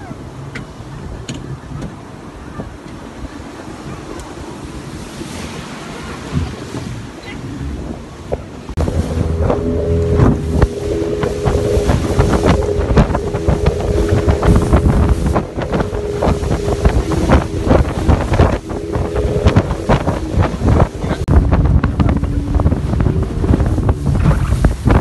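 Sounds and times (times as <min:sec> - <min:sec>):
wind buffeting microphone: 0:00.0 - 0:25.0
hull slapping water: 0:00.1 - 0:25.0
motorboat engine drone: 0:06.0 - 0:25.0.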